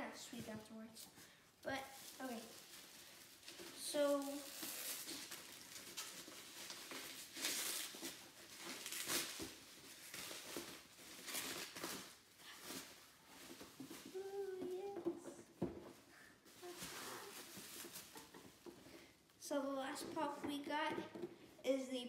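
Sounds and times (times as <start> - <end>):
cardboard crinkling: 1.8 - 19.1
cardboard boxes rustling: 2.0 - 19.0.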